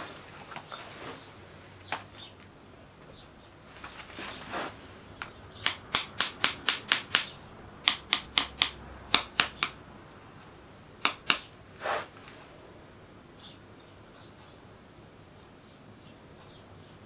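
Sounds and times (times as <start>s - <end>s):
soft scrape: 3.7s - 5.0s
sharp taps of hand tool: 5.2s - 9.8s, 11.0s - 11.5s.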